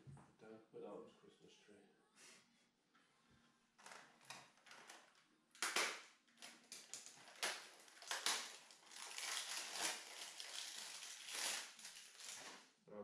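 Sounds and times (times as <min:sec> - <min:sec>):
packaging rustling and crackling: 0:03.8 - 0:12.7.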